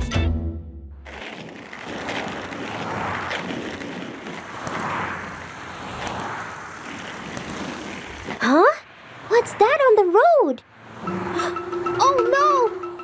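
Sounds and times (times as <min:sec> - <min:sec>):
whoosh of passing cars: 0:01.4 - 0:09.7, 0:10.6 - 0:12.1.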